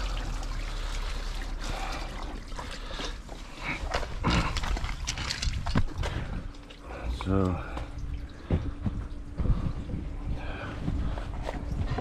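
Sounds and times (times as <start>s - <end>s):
water pouring onto ground: 0.0s - 8.4s.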